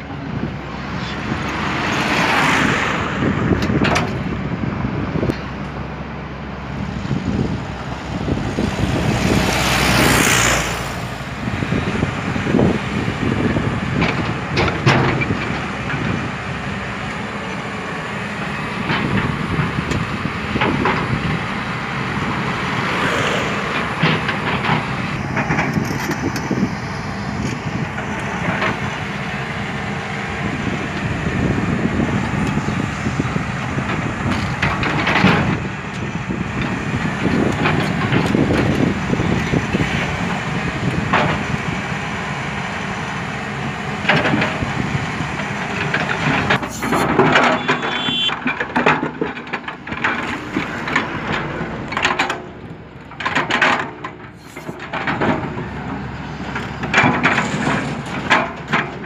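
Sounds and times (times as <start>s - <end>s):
excavator diesel engine: 0.0s - 59.0s
bucket scraping dirt and concrete: 46.6s - 48.3s.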